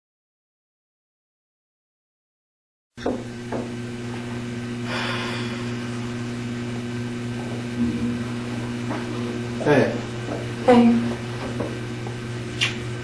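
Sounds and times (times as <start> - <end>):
electrical hum: 3.0 - 13.0.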